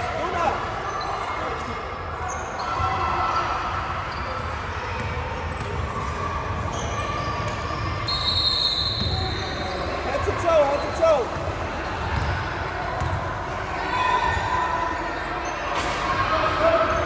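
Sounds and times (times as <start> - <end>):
basketball bouncing on court: 4.2 - 7.8, 11.3 - 13.3.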